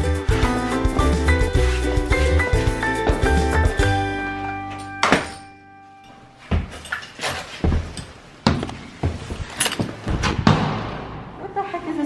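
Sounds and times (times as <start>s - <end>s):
irregular knocks and thumps: 7.6s - 11.4s
door thudding shut: 10.1s - 11.4s.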